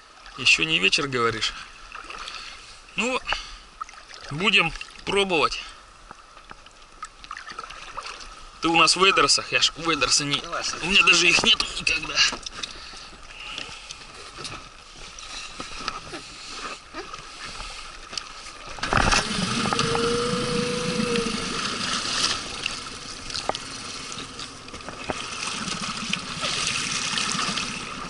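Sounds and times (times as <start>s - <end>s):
outboard motor idling: 18.8s - 28.0s.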